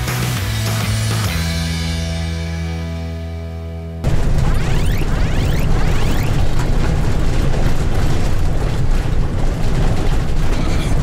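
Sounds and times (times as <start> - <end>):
road and engine rumble: 4.0 - 11.0.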